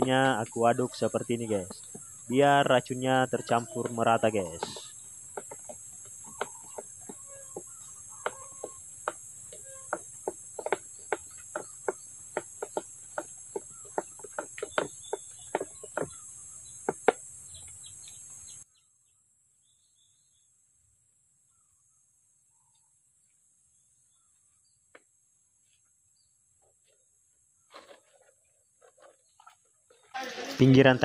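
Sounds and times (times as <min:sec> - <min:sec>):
crickets buzzing: 0:00.0 - 0:18.6.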